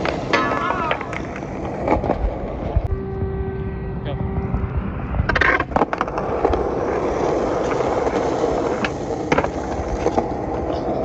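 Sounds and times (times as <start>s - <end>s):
skateboard clacks: 0.0s - 2.9s, 5.1s - 11.0s
skateboard pop and clack: 0.0s - 2.9s, 5.2s - 11.0s
skateboard wheels rolling on concrete: 0.0s - 3.4s, 4.3s - 11.0s.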